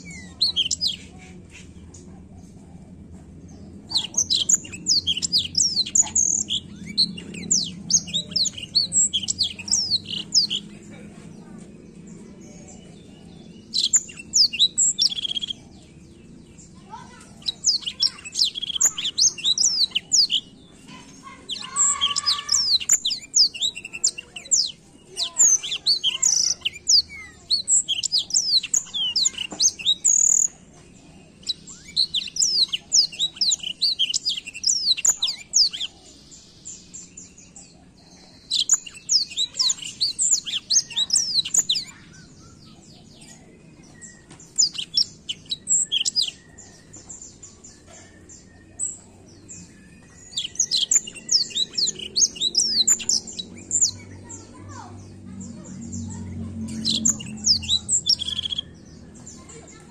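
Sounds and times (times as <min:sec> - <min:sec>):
canary singing: 0:00.0 - 0:59.9.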